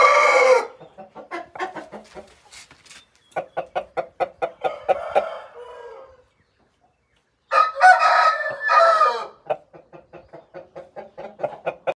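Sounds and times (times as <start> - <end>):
rooster crowing: 0.0 - 0.7, 4.6 - 6.2, 7.5 - 9.4
rapid clucking: 9.5 - 11.9.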